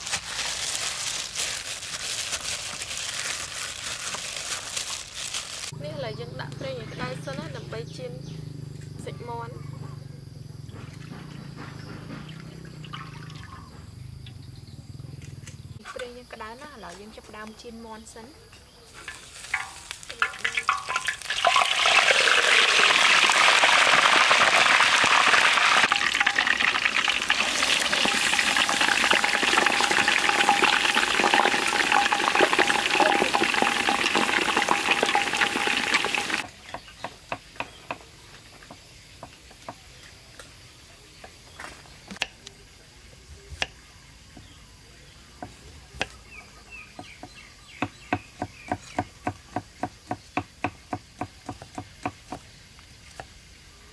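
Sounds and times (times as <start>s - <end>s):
oil sizzling and bubbling: 0.0s - 5.8s, 19.0s - 36.9s.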